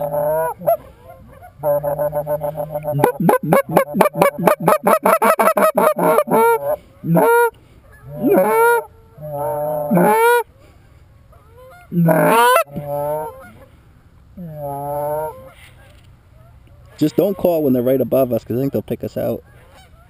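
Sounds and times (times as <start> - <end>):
goose honking: 0.0 - 10.4, 11.3 - 13.7, 14.4 - 15.8, 16.4 - 17.7.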